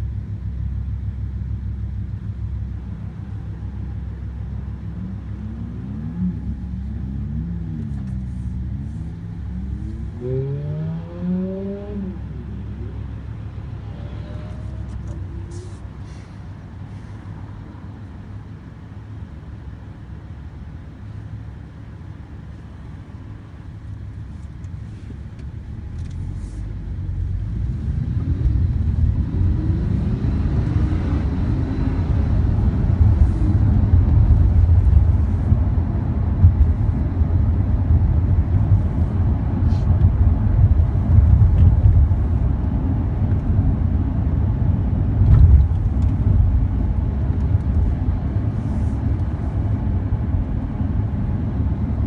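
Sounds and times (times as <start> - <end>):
road rumble: 0.0 - 52.0
car engine accelerating: 1.1 - 15.8.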